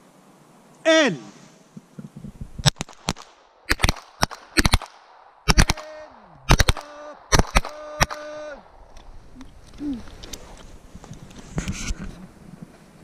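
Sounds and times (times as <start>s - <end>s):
pistol shots: 2.6s - 8.4s.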